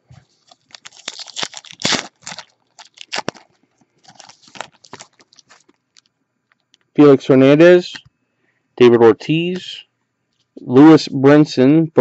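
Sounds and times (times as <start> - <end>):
cards rustling: 0.0 - 6.1
wrapper crinkling and tearing: 0.3 - 6.1.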